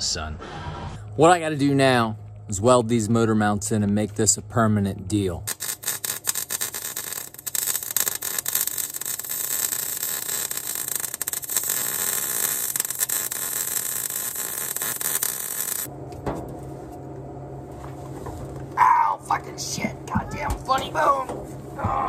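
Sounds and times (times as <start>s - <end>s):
low steady hum: 0.0s - 22.0s
arc welding crackle: 5.4s - 15.9s.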